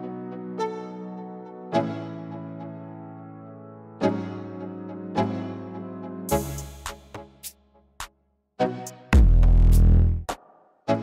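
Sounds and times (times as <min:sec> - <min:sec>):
background music with held chords: 0:00.0 - 0:11.0.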